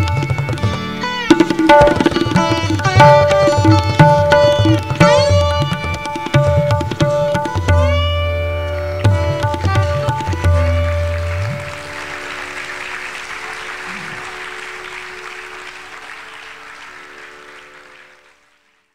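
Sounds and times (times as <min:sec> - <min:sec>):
tabla strokes: 0:00.0 - 0:16.0
audience applause: 0:08.7 - 0:18.9.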